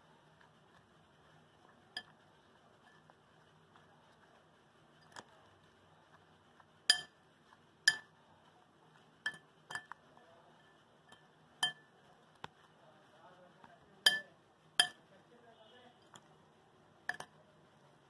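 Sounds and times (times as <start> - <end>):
metal spoon clinking on glass bowl: 1.9 - 2.2, 6.9 - 7.2, 7.9 - 8.1, 9.2 - 10.0, 11.1 - 11.9, 14.0 - 15.0.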